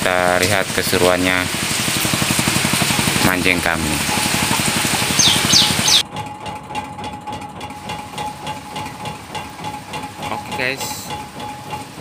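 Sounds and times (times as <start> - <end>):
boat engine running: 0.0 - 12.0
wind: 0.0 - 12.0
water hiss: 0.4 - 6.0
high falling chirps: 4.3 - 6.0.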